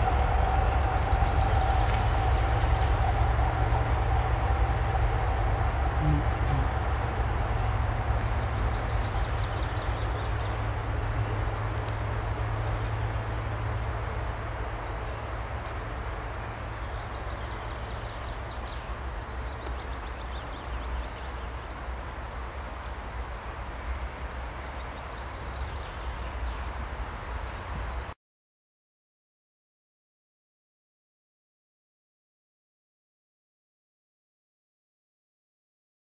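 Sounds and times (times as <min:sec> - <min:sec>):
diesel locomotive engine hum: 0:00.0 - 0:28.1.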